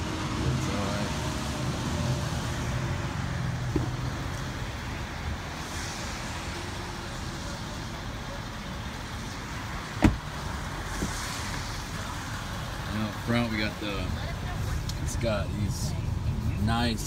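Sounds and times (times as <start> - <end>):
traffic hum: 0.0 - 17.0
car door shutting: 10.0 - 10.3.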